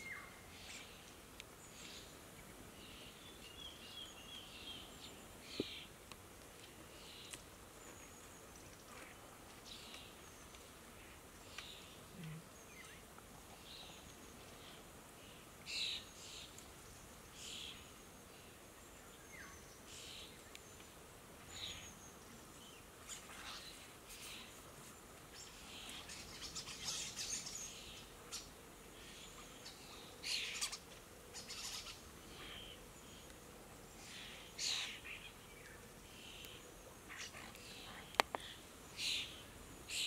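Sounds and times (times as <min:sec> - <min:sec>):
starlings chirping: 0:29.1 - 0:33.2.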